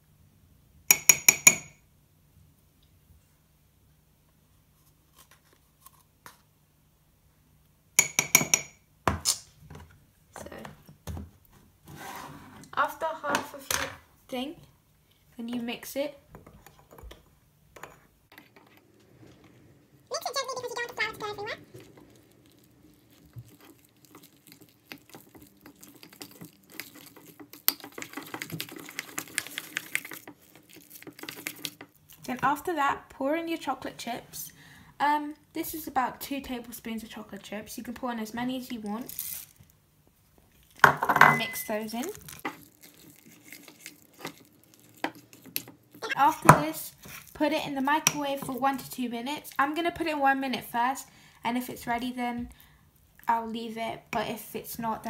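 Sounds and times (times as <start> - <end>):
spoon clinking on ceramic mug: 0.9 - 1.8, 8.0 - 8.8
spoon stirring dough in a mug: 8.0 - 8.7, 21.7 - 32.1, 41.3 - 49.0.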